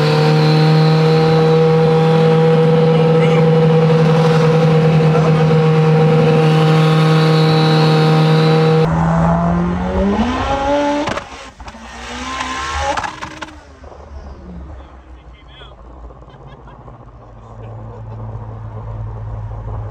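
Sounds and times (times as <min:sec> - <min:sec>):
engine revving under acceleration: 0:00.0 - 0:14.9
car engine droning: 0:00.0 - 0:19.9.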